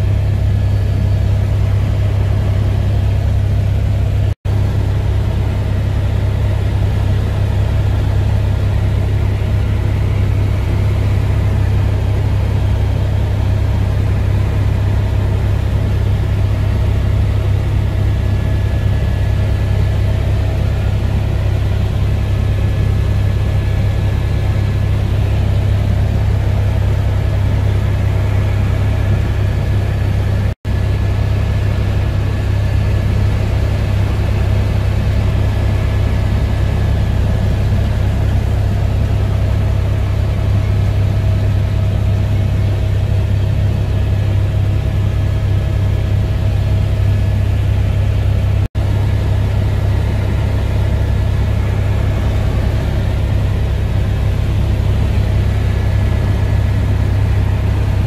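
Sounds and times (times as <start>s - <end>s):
helicopter rotors and engine drone: 0.0s - 58.0s.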